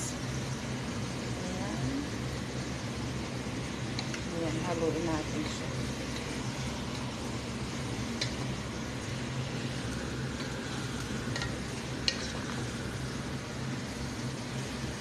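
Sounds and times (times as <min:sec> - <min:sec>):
light sizzle: 0:00.0 - 0:15.0
spatula stirring food in pot: 0:02.6 - 0:04.3, 0:05.3 - 0:15.0.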